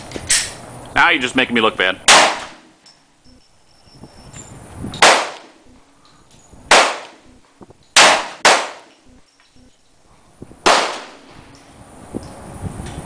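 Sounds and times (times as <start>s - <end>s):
pistol shots with echo: 2.1s - 2.6s, 5.0s - 5.6s, 6.7s - 7.2s, 8.0s - 8.9s, 10.6s - 11.2s.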